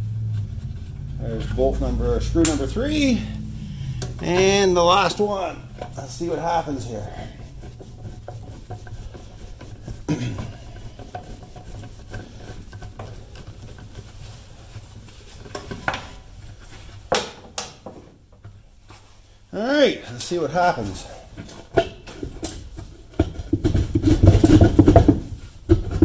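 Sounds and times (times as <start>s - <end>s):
low steady hum: 0.0s - 17.7s.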